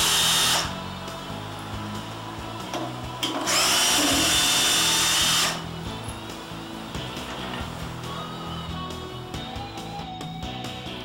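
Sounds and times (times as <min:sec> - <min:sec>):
cordless drill motor whine: 0:00.0 - 0:08.0.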